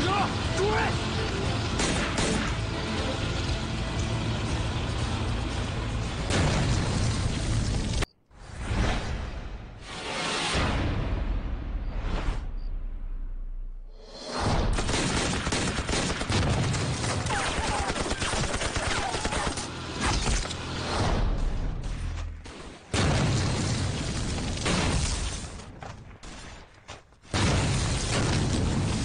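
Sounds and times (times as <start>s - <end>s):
gunfire: 1.8s - 2.6s, 14.5s - 25.5s
explosions: 6.2s - 18.2s, 20.9s - 26.4s, 27.3s - 29.0s.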